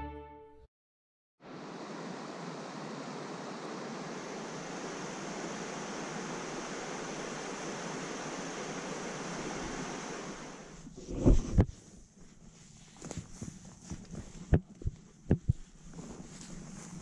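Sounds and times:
stream flowing over rocks: 1.5 - 10.7.

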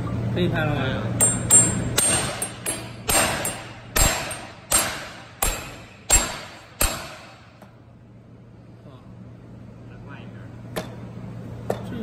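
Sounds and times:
metallic ring: 1.2 - 7.0
hammer striking metal tube: 1.2 - 7.7.

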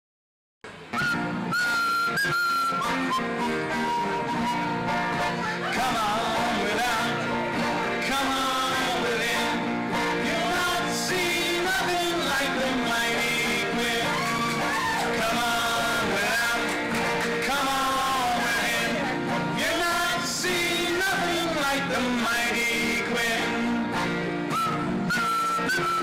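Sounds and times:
acoustic guitars and banjo strumming: 0.7 - 26.0
people singing: 4.8 - 24.6.

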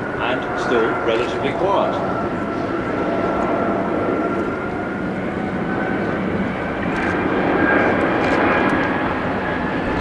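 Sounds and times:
jet engine rumble and whine: 0.0 - 10.0.

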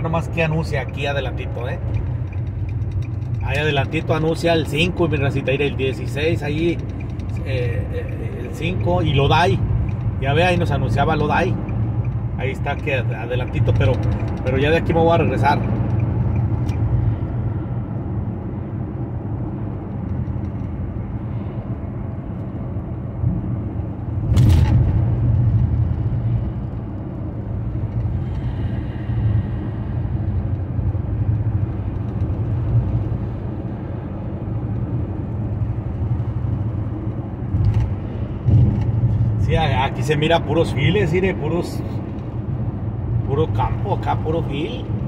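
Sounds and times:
car interior road drone: 0.0 - 45.0
loud thump: 24.3 - 25.3.

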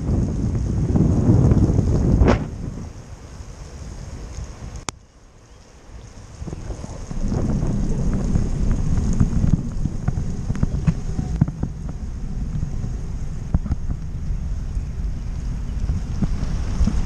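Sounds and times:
wind rushing over microphone: 0.0 - 5.0, 5.8 - 17.0
bicycle rumble on wet road: 0.0 - 17.0.

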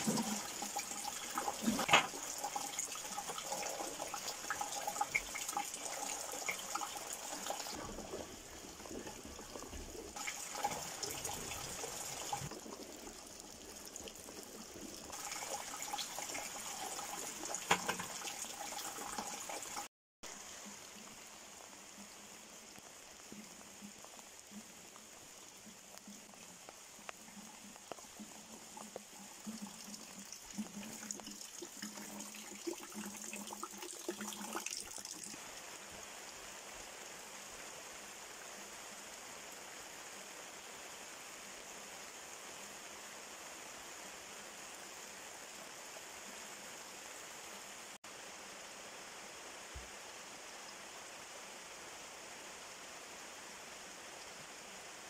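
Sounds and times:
water splashing around buckets: 0.0 - 20.4
rain falling: 0.0 - 55.0.

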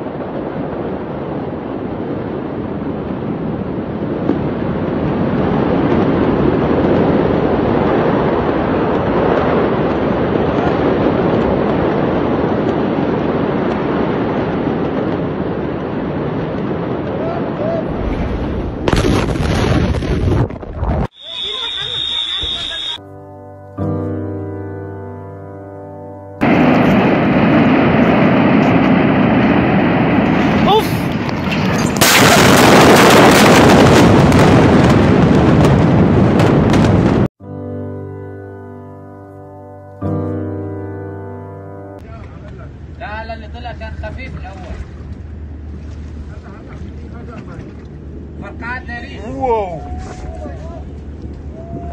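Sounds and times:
distant fire roaring: 0.0 - 23.0, 26.4 - 37.3, 42.0 - 51.9
wind: 0.0 - 51.9
sharp cracks: 30.2 - 35.8.

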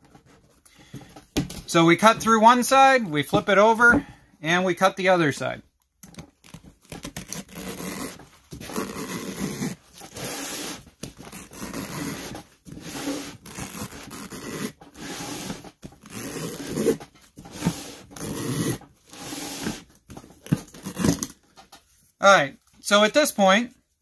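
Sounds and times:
knife slicing through rubber: 6.4 - 21.3.

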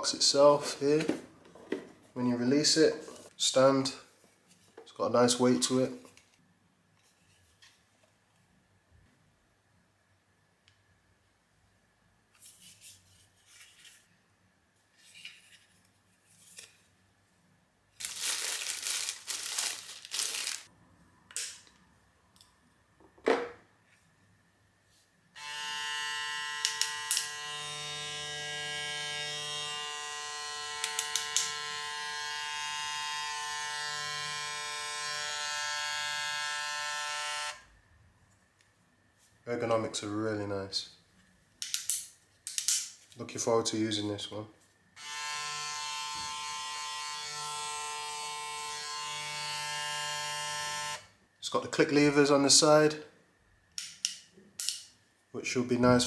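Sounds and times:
packaging crinkling: 18.0 - 20.7
hair clipper buzzing: 25.4 - 37.6, 45.0 - 51.1.

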